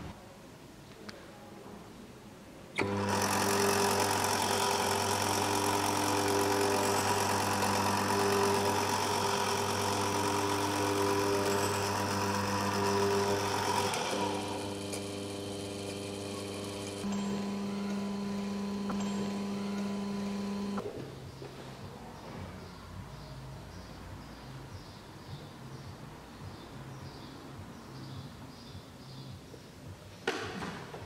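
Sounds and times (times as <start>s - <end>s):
electric motor buzzing hum: 2.8s - 20.8s
motor whirring: 2.8s - 20.8s.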